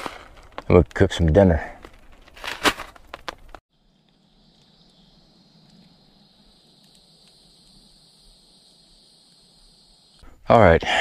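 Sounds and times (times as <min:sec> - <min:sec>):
foil pouch rustling: 0:01.8 - 0:03.6
insects droning: 0:03.7 - 0:11.0.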